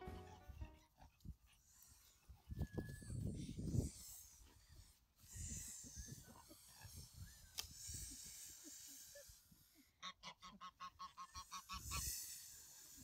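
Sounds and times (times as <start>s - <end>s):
goose honking: 0.0s - 0.9s, 10.0s - 11.8s.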